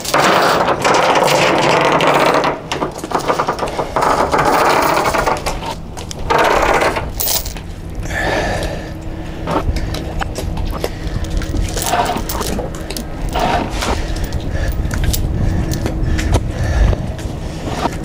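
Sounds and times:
anchor chain rattling: 0.0 - 7.7, 9.9 - 15.9.

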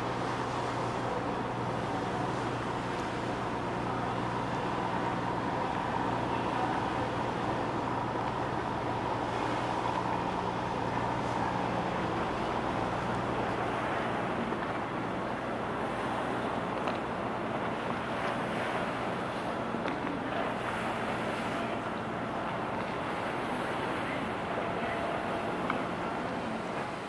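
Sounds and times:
ferry engines humming: 0.0 - 27.0.

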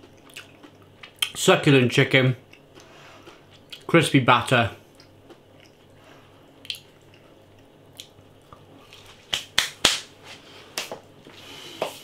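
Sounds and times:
wet chewing and mouth sounds: 0.0 - 1.4, 2.4 - 3.9, 4.9 - 9.2.

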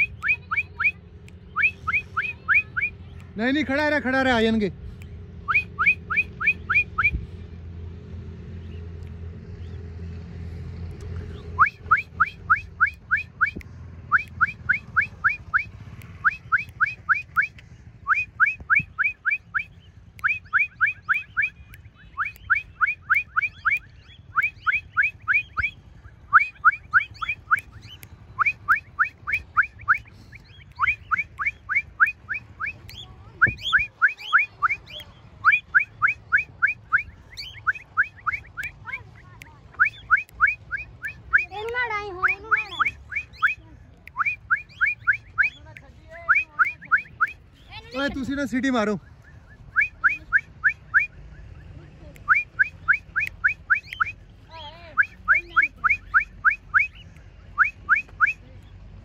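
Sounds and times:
person whistling: 0.0 - 2.9, 5.5 - 7.2, 11.6 - 39.1, 39.8 - 41.6, 42.2 - 47.4, 49.1 - 51.2, 52.2 - 54.2, 55.0 - 58.4.

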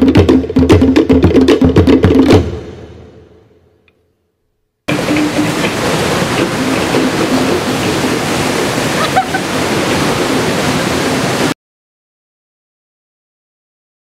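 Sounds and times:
ocean surf on rocks: 4.9 - 11.6.

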